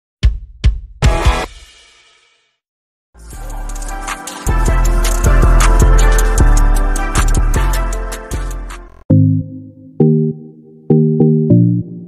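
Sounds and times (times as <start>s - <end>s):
deep bass: 3.2s - 10.4s
intro music with steady beat: 3.2s - 12.0s.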